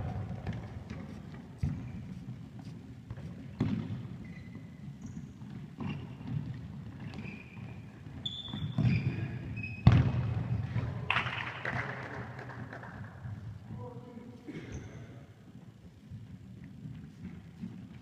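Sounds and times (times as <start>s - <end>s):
football thumps echoing: 3.1s - 4.1s, 9.8s - 12.0s.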